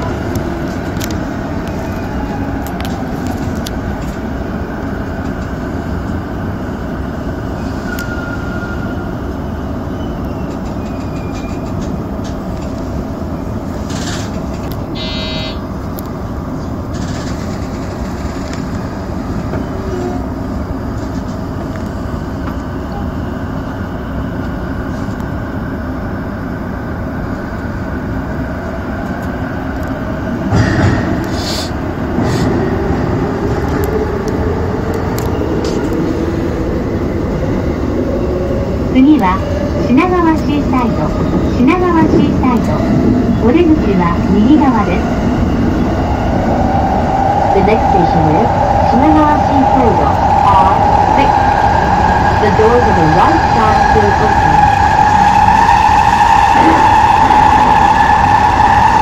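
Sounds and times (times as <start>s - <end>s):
train wheels rumbling on rail: 0.0s - 59.0s
brief high tone: 15.0s - 15.6s.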